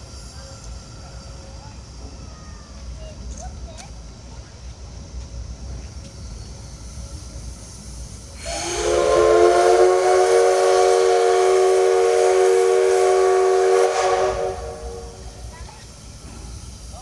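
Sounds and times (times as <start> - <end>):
rush of steam: 0.0 - 17.0
steam whistle blast: 8.4 - 15.4.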